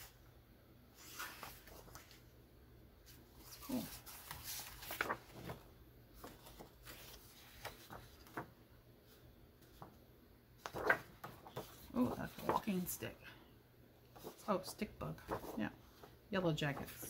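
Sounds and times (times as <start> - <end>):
paper pages rustling: 1.0 - 2.3, 3.0 - 10.0, 10.6 - 13.0, 14.1 - 17.0.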